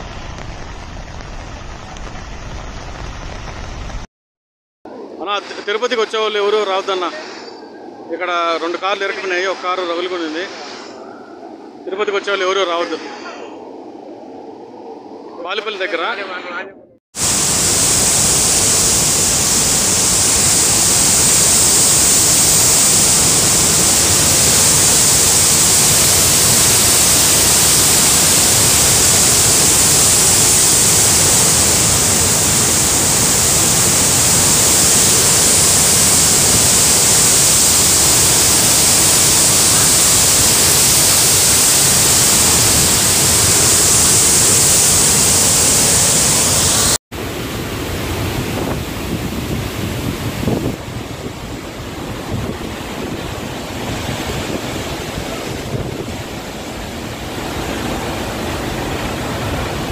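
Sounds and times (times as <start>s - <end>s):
floodwater rushing: 17.2s - 59.9s.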